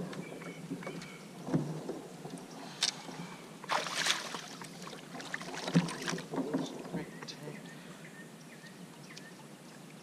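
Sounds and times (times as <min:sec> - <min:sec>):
paddle splashing water: 0:00.6 - 0:07.2.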